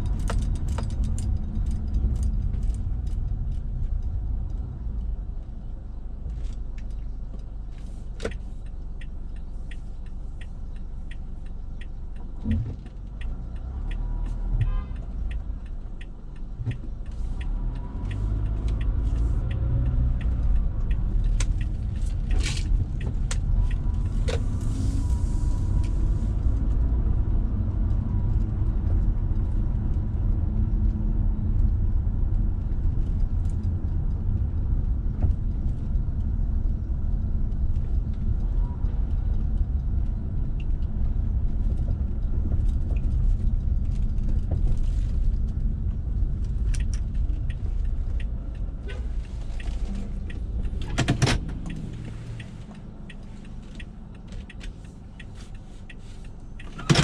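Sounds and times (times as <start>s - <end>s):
engine and tyre rumble: 0.0s - 57.0s
sharp clicks and rattles: 39.1s - 57.0s.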